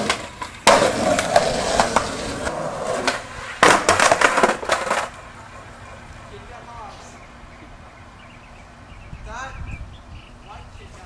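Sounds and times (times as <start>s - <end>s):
skateboard slamming on concrete: 0.0s - 6.0s
skateboard clattering: 0.0s - 6.4s
skateboard wheels rolling: 0.0s - 7.9s.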